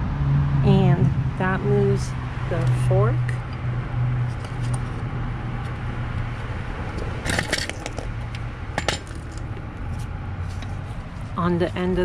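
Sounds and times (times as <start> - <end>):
low hum: 0.0 - 12.0
metal clutch parts clinking: 4.3 - 5.0, 5.6 - 11.3.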